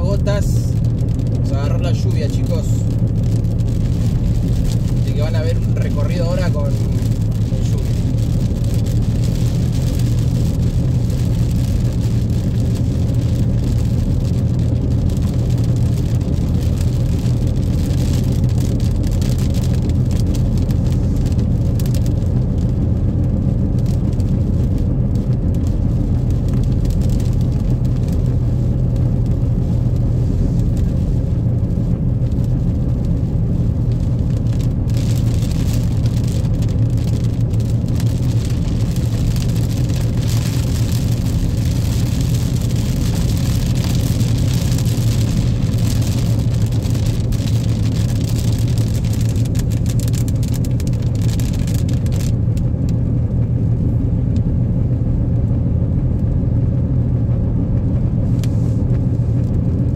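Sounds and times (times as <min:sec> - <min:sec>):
car engine and road hum: 0:00.0 - 0:59.9
tyres hissing on wet road: 0:29.7 - 0:31.3, 0:58.2 - 0:59.3.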